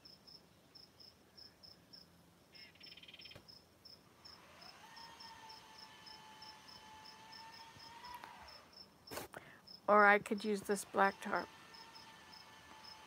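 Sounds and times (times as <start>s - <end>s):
cricket chirping: 0.0s - 5.6s.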